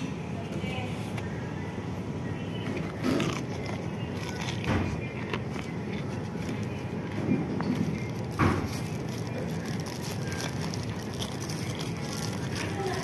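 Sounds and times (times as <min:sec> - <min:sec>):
fried chicken tearing and crackling: 0:02.9 - 0:13.0.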